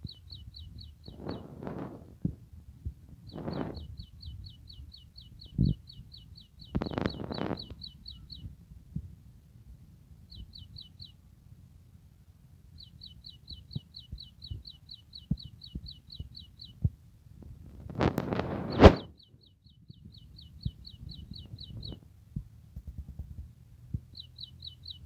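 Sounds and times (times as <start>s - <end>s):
low rumbles and bumps: 19.8s - 24.2s.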